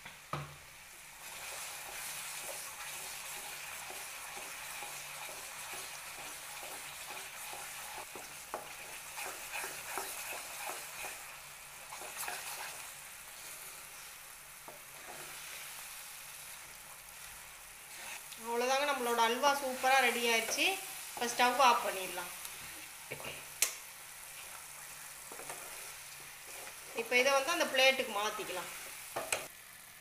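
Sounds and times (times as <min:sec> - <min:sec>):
food sizzling: 0:00.0 - 0:30.0
wooden spatula scraping pot: 0:01.4 - 0:12.8, 0:14.7 - 0:15.7, 0:24.4 - 0:29.4.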